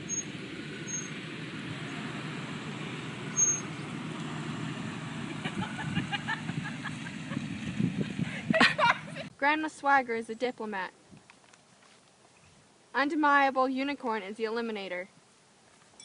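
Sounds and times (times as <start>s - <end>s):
car driving by: 0.0s - 9.3s.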